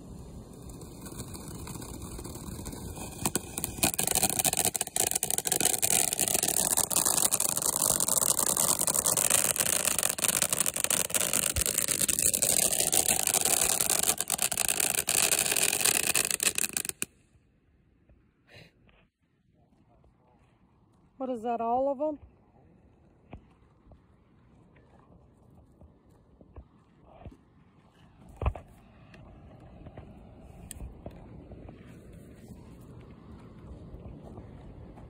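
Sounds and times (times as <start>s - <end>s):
firework fountain hissing and crackling: 0.0s - 17.2s.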